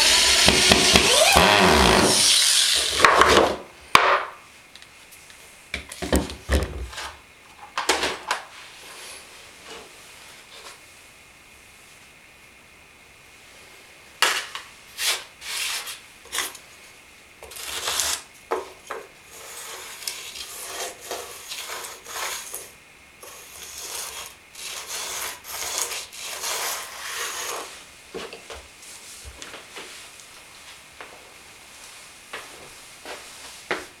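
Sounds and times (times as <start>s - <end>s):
hand scraping plywood floor: 0.0s - 2.4s, 19.3s - 28.3s.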